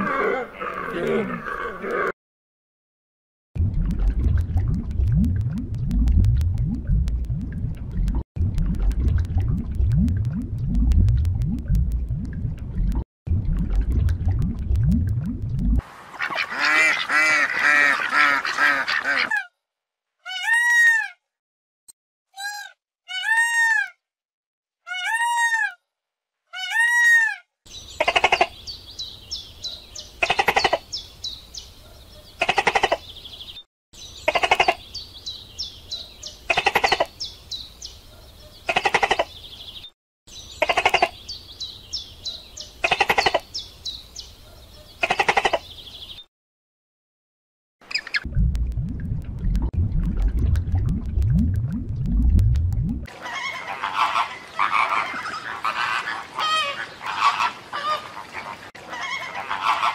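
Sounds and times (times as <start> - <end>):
geese honking: 16.2 - 19.5, 53.2 - 59.9.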